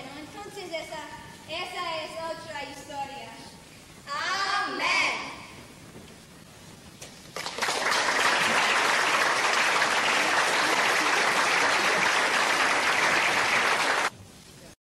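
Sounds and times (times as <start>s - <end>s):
audience applauding: 7.4s - 14.1s.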